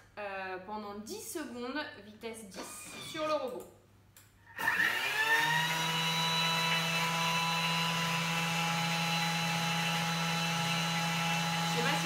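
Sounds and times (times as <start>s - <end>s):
blender motor whining: 4.5s - 12.0s.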